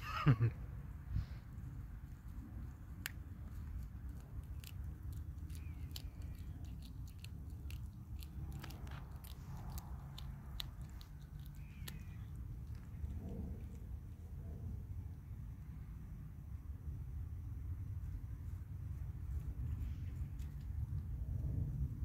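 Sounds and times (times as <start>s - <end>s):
cat crunching on prey: 1.6s - 14.0s, 20.2s - 21.4s.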